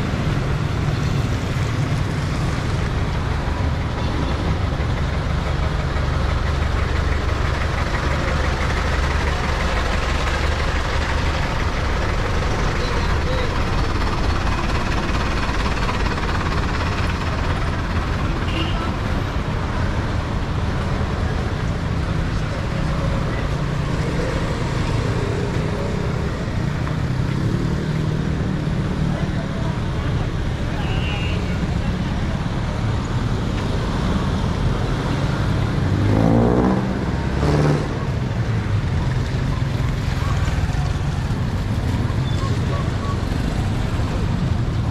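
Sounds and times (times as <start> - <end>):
street traffic rumble: 0.0 - 44.9.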